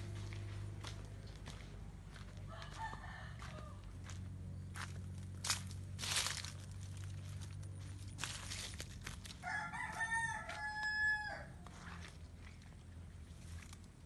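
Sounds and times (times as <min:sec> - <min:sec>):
rooster crowing: 0:02.5 - 0:04.2, 0:09.4 - 0:12.0
rustling through leafy plants: 0:04.8 - 0:09.8, 0:11.6 - 0:14.0.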